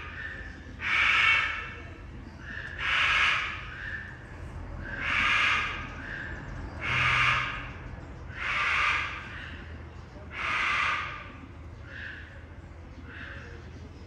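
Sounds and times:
cockatoo screeching: 10.3 - 11.3.

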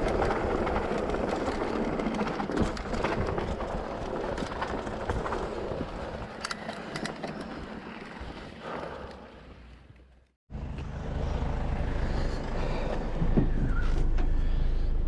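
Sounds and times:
bike chain and frame rattling: 0.0 - 8.8.

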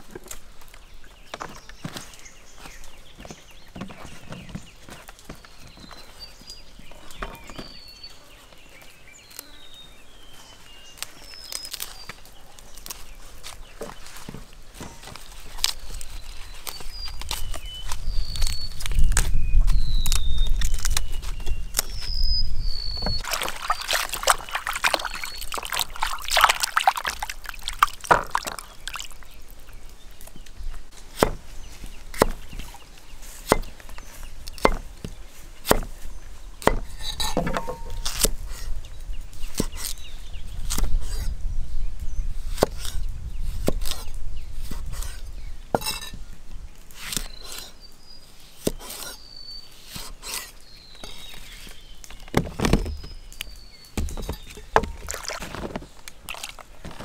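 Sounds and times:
birds chirping: 0.0 - 57.0
liquid pouring: 23.2 - 29.4, 54.8 - 55.5
knife chopping on wooden board: 31.2 - 31.4, 32.2 - 32.6, 33.4 - 33.8, 34.6 - 35.9, 36.6 - 38.4.

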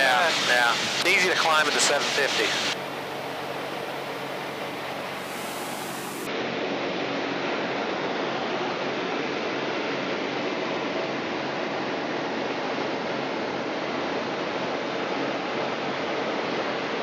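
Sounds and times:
airflow rush: 0.0 - 6.3
light aircraft engine and propeller: 0.0 - 17.0.

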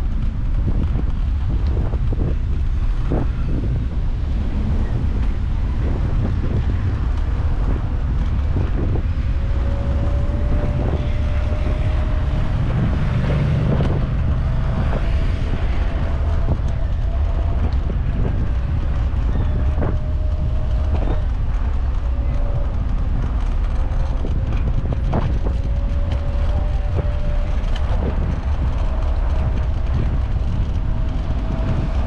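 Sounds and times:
low rumble of riding over paving: 0.0 - 32.0
wind buffeting microphone: 0.0 - 32.0.

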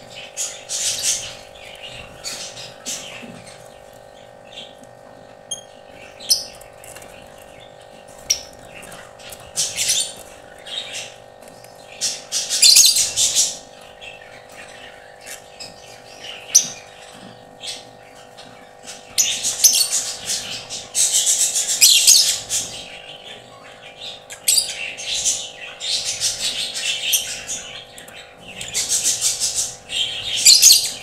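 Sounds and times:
birds chirping and squawking: 0.0 - 31.0
steady background hum: 0.0 - 31.0.

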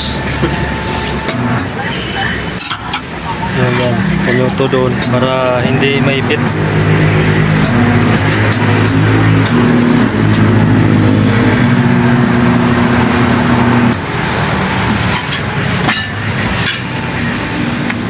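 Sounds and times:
turntable motor humming: 0.0 - 18.0
metallic clanks of tire bar: 14.9 - 16.9.

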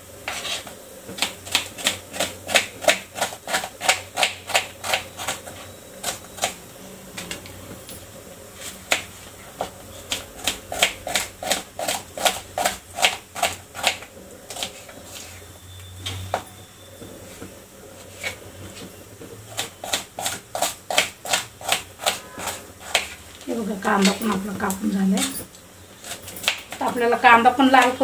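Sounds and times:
knife chopping onion on cutting board: 0.3 - 5.4, 8.6 - 14.8, 19.5 - 23.2.

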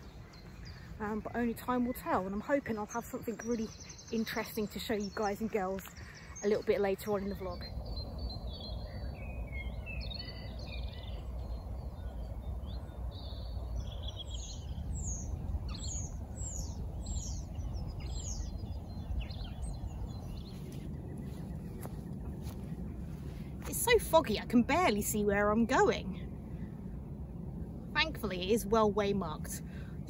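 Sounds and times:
low background rumble: 0.0 - 30.0
songbirds singing: 0.0 - 30.0.

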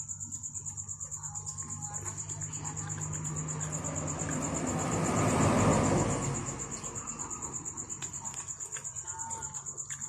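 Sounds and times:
vehicle passing by: 2.0 - 8.6.

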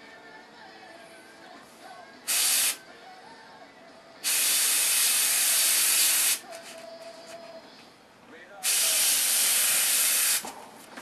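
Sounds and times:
airbrush hiss of compressed air: 2.3 - 2.8, 4.2 - 6.4, 8.6 - 10.4.

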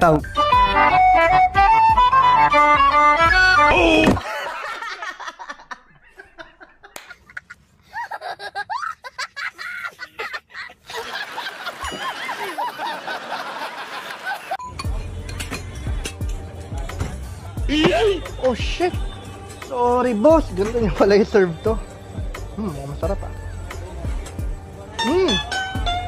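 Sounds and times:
man laughing: 4.2 - 14.6
high voice laughing: 6.9 - 10.9.

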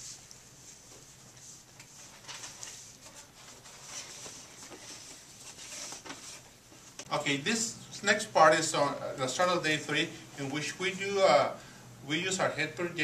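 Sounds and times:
small rustles: 0.0 - 6.9.

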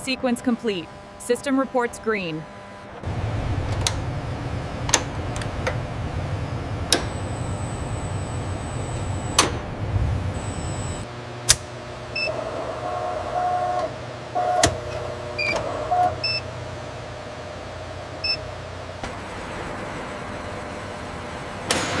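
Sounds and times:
low steady hum: 0.0 - 12.3
electric motor whirring: 0.6 - 11.1.

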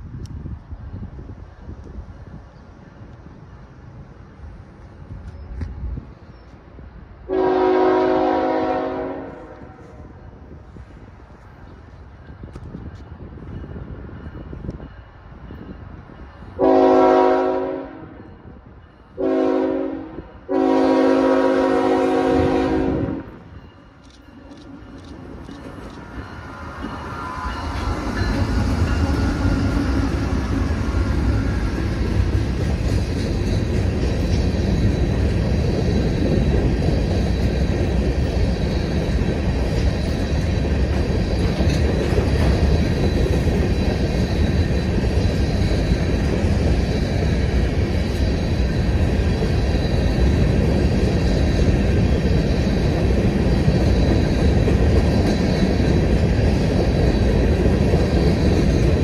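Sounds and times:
diesel locomotives passing: 0.0 - 59.0
freight cars rumbling and clattering: 23.4 - 59.0.

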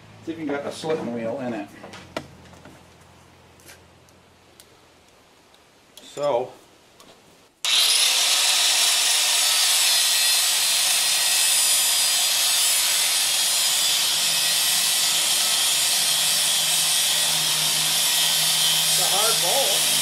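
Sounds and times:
angle grinder cutting steel: 7.6 - 20.0.

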